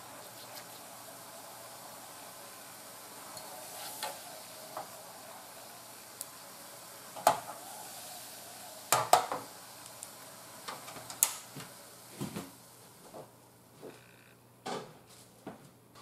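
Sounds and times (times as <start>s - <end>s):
sauce bubbling in a pan: 0.2s - 10.6s.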